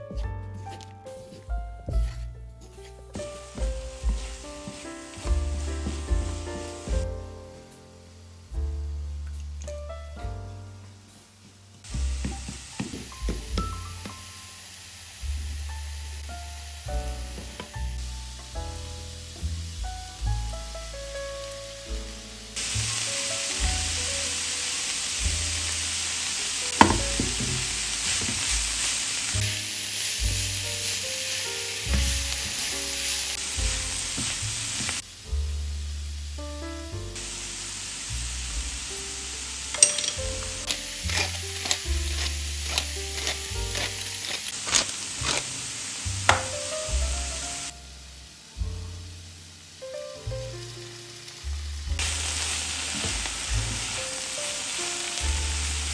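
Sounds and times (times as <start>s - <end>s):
spatula scraping and tapping pan: 0.8s - 6.3s, 26.8s - 28.6s, 39.8s - 45.4s
vegetables sizzling in a frying pan: 3.1s - 9.6s, 10.9s - 55.9s.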